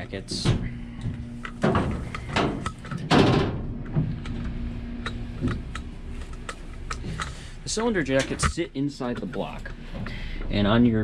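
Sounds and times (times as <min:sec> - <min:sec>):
heavy footsteps on steel deck: 0:00.0 - 0:04.4
steady low hum: 0:00.0 - 0:11.0
small knocks and clicks: 0:00.4 - 0:10.2.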